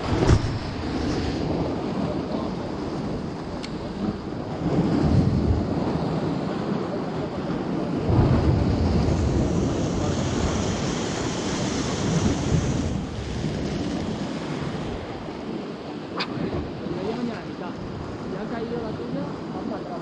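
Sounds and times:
sea waves breaking over rocks: 0.0s - 20.0s
wind rumbling on microphone: 0.0s - 20.0s.

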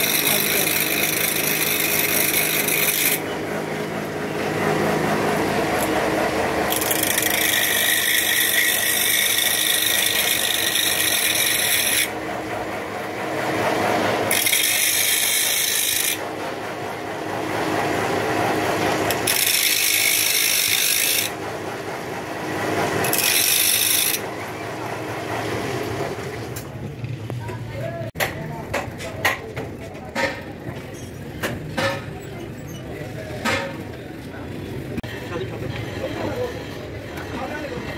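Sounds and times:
abrasive disc grinding metal: 0.0s - 3.4s, 4.7s - 12.2s, 14.0s - 16.3s, 18.6s - 21.4s, 22.9s - 24.6s
power tool running: 0.0s - 26.7s.

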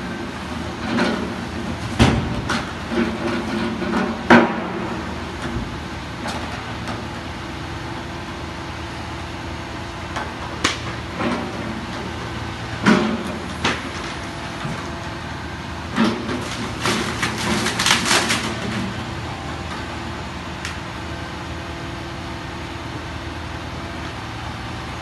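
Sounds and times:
lorry engine and hydraulic crane: 0.0s - 25.0s.

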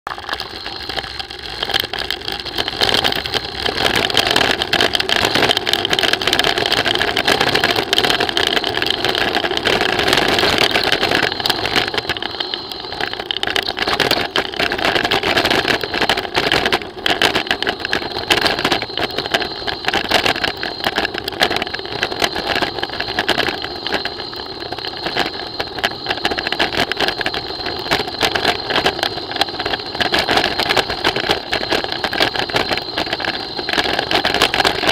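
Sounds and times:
small rattles: 0.1s - 34.9s
thin steady whine: 0.1s - 34.9s.

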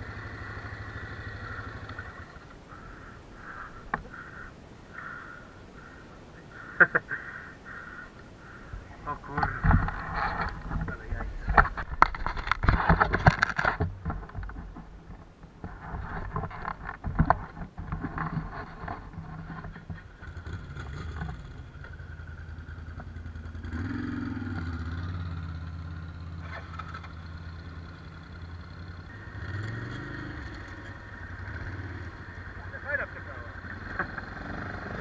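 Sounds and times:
quad bike engine idling: 0.0s - 4.4s, 19.0s - 35.0s
handling knocks and rustling: 9.3s - 21.5s.

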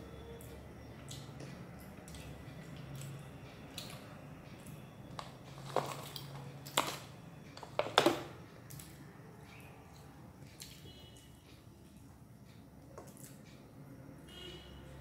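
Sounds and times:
chewing food: 0.4s - 6.8s.

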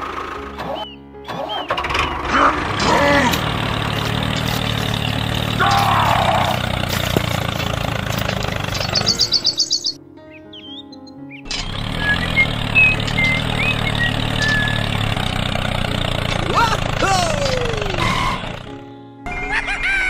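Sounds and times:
small engine running: 0.0s - 10.0s, 11.5s - 18.8s
birds chirping: 0.6s - 19.8s.

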